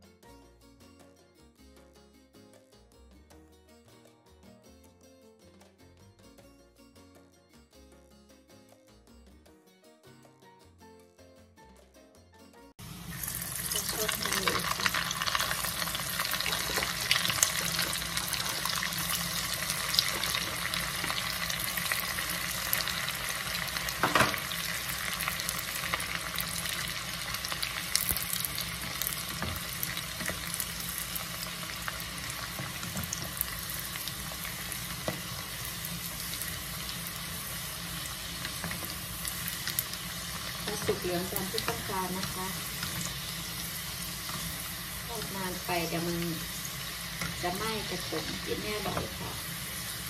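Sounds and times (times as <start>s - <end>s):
food deep-frying in oil: 12.8s - 50.0s
loud crack of frying oil: 12.8s - 50.0s.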